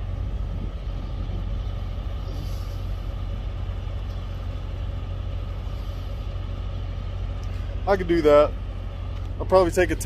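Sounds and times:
diesel truck engines idling: 0.0s - 10.0s.

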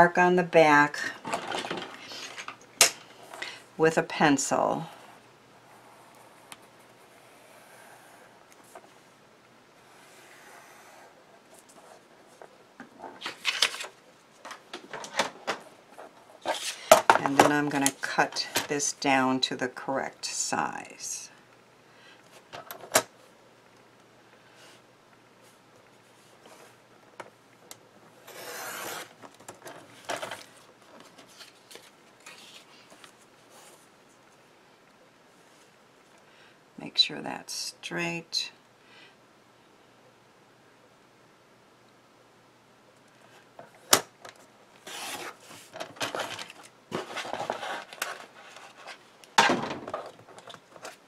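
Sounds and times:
rustling and scraping of handling: 1.0s - 3.6s, 4.6s - 9.2s, 9.8s - 19.0s, 24.5s - 27.4s, 28.0s - 34.5s, 43.2s - 51.0s
paper rustling: 13.2s - 15.2s, 28.3s - 33.9s, 44.8s - 49.1s
paper trimmer blade sliding: 28.3s - 29.1s.

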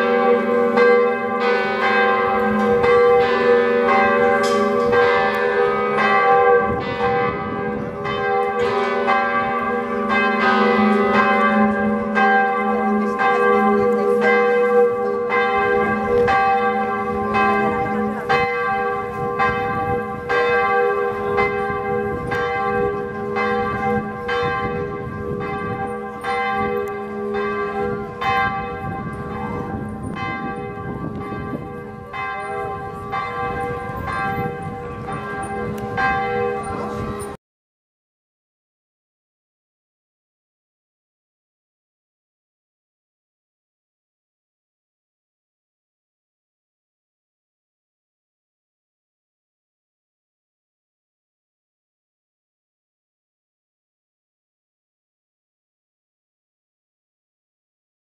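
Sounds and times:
church bells pealing: 0.0s - 37.4s.

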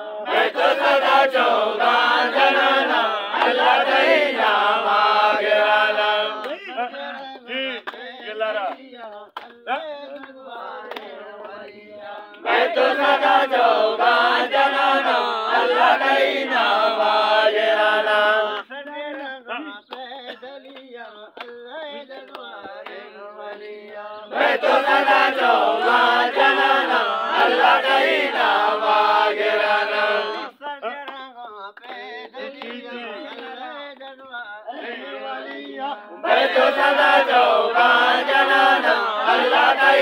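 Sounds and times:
crowd chanting in response: 0.0s - 7.9s, 10.2s - 18.7s, 22.6s - 30.6s, 34.7s - 40.0s
handclaps: 0.3s - 17.2s, 18.1s - 29.0s, 30.9s - 34.3s.

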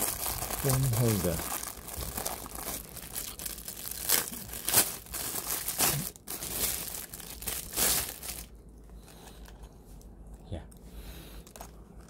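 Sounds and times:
plastic wrap crinkling: 0.0s - 9.6s.

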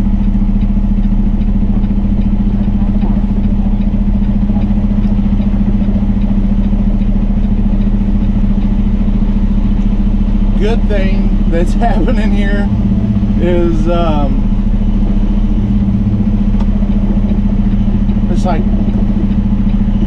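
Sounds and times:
truck diesel engine droning: 0.0s - 20.0s.

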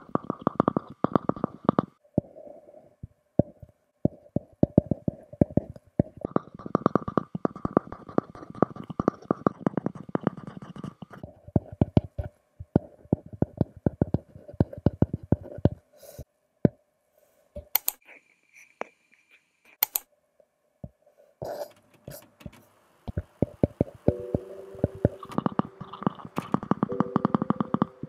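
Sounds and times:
stylus tapping on screen: 3.4s - 15.8s, 20.8s - 28.0s.

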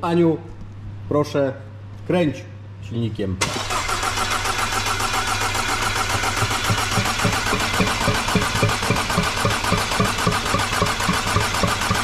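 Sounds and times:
engine cranking on starter motor: 3.4s - 12.0s.

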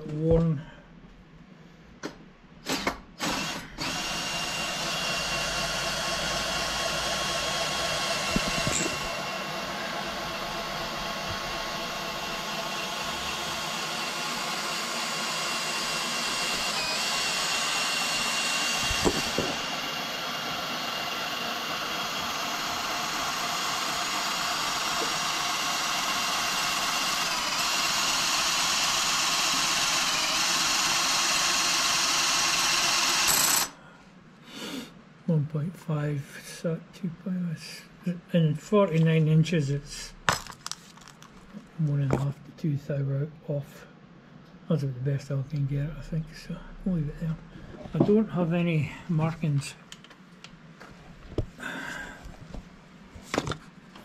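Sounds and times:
electric motor whining: 2.8s - 33.7s.

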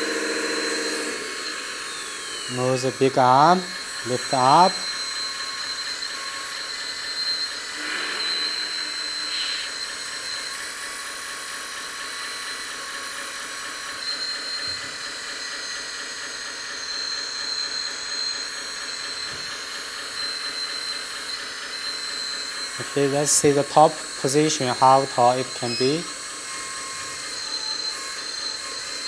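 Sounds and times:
simulated engine sound: 0.0s - 5.0s
motor and hydraulic pump whine: 0.0s - 29.0s.

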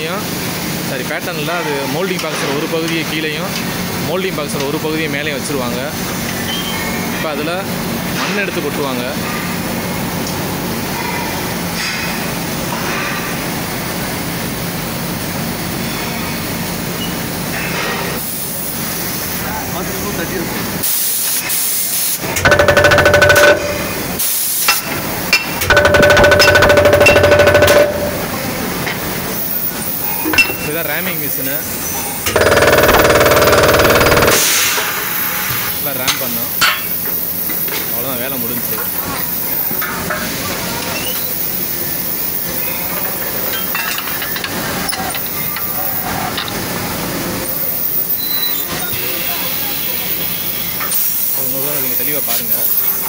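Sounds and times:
moulding machine rapid hammering: 22.2s - 24.2s, 25.3s - 28.4s, 32.3s - 34.6s
metal clanks: 22.4s - 24.2s, 25.4s - 28.4s.

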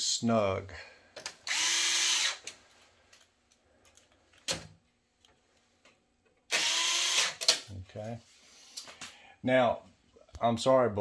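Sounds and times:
electric screwdriver motor whine: 1.5s - 2.4s, 6.5s - 7.4s.

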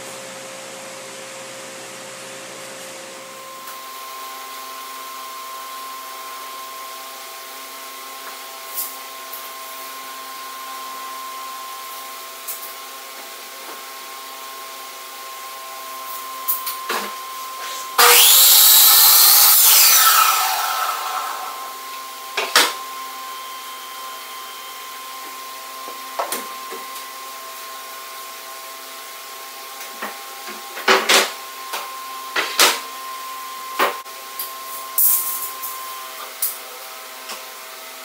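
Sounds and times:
miter saw cutting wood: 17.6s - 22.7s
machine hum: 18.0s - 22.0s.

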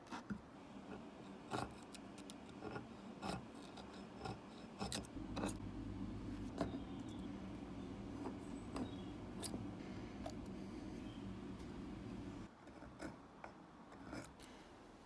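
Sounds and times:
low hum: 5.1s - 12.5s.

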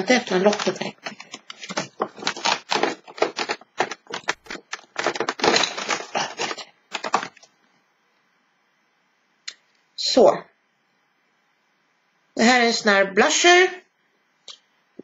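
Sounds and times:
packaging clicks and rustles: 0.0s - 7.5s.

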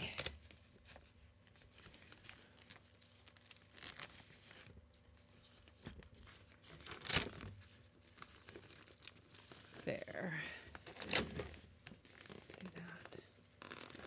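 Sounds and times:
velcro ripping: 13.6s - 14.0s.

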